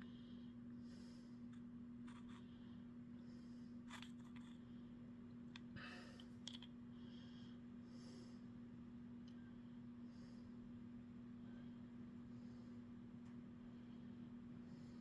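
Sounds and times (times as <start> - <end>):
steady low hum: 0.0 - 15.0
fingers handling a small stone: 2.0 - 2.4.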